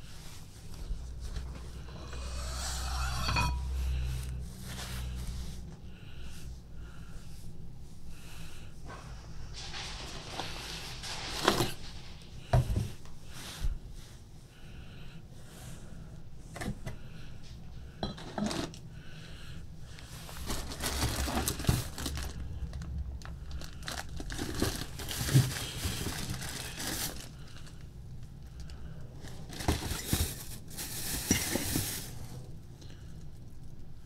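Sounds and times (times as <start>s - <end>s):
cardboard rustling: 20.2s - 22.5s, 23.6s - 27.7s, 29.3s - 32.3s
plastic wrapping crinkling: 20.2s - 27.9s, 28.6s - 32.3s.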